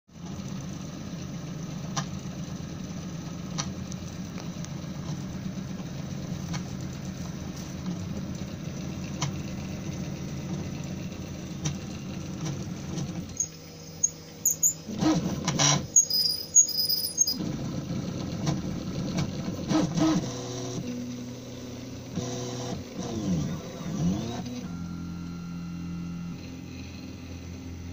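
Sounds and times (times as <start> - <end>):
high-pitched stepper whines and chirps: 13.3 - 14.9, 15.8 - 17.4.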